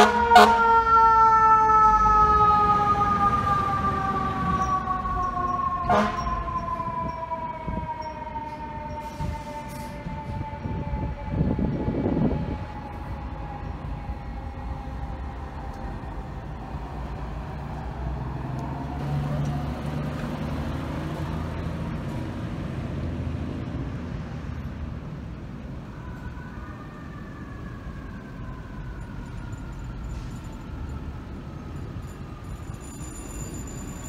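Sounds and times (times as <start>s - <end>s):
siren sliding down in pitch: 0.0s - 20.6s
passing traffic: 0.0s - 34.0s.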